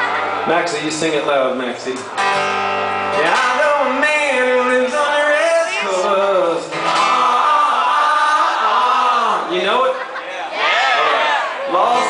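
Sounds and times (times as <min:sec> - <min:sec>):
man singing wordless melody: 0:03.2 - 0:09.6.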